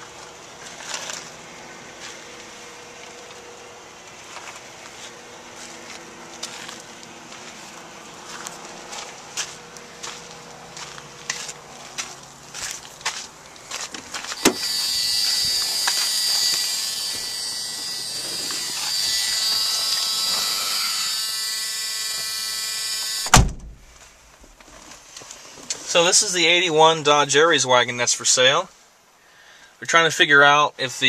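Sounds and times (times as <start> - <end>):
electric motor whining: 14.4 - 23.4.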